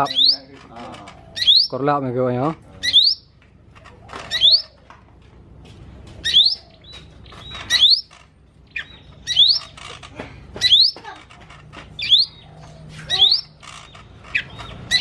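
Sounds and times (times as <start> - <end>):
bird singing whistled notes: 0.0 - 0.5, 1.4 - 1.8, 2.8 - 3.3, 4.3 - 4.8, 6.2 - 8.1, 8.7 - 9.7, 12.0 - 12.4.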